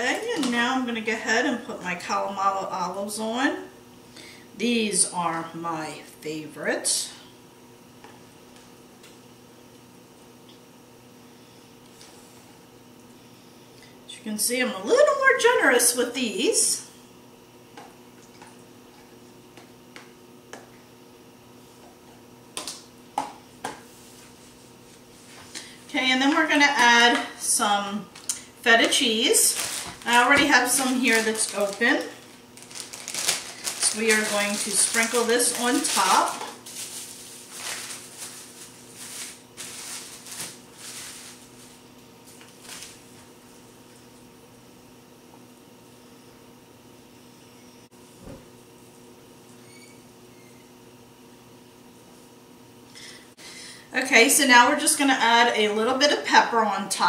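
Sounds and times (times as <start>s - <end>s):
faint steady hum: 0.0s - 57.0s
plastic bag crinkling: 28.1s - 43.2s.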